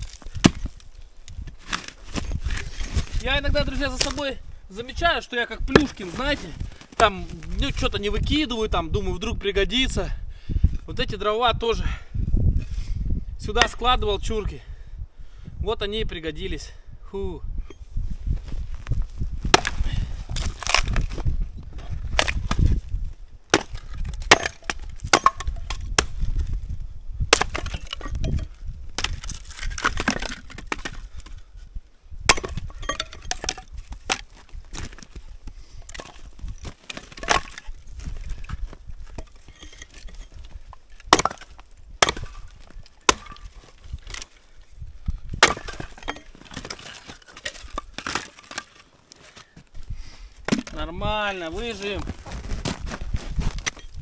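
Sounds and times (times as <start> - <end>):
axe chopping firewood: 0.0 - 0.9, 1.7 - 3.1, 5.6 - 7.2, 19.4 - 22.8, 23.5 - 26.5, 27.3 - 31.4, 32.2 - 35.2, 35.8 - 44.4, 45.2 - 48.8, 50.5 - 50.9
wood cracking apart: 0.0 - 4.3, 5.7 - 7.8, 19.5 - 21.3, 22.0 - 22.7, 23.5 - 26.5, 27.3 - 31.3, 32.3 - 44.5, 45.3 - 49.3.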